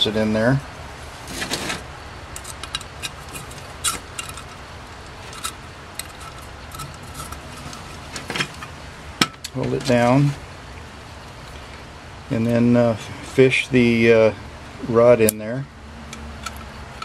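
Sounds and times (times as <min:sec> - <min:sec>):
small metal parts clicking: 0:02.4 - 0:08.7, 0:16.1 - 0:17.0.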